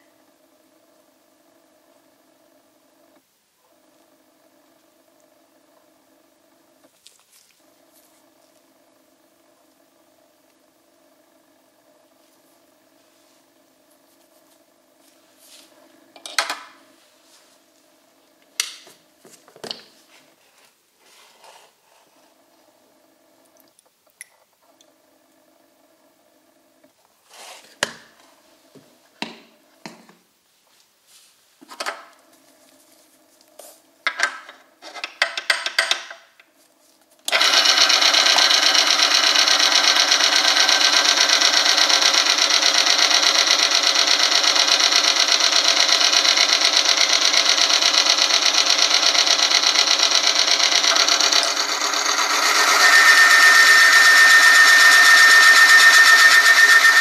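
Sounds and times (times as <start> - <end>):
machine grinding whirr: 37.2 - 57.0
high-pitched squeal: 50.9 - 57.0.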